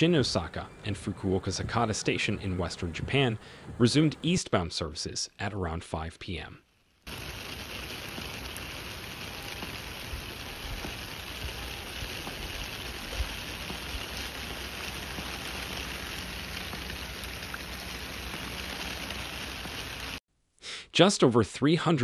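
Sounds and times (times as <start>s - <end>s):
heavy rain pouring: 7.1s - 20.2s.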